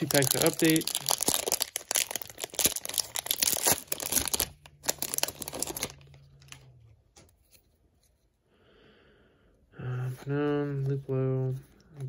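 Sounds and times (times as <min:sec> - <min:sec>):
wrapper tearing and crinkling: 0:00.0 - 0:06.6.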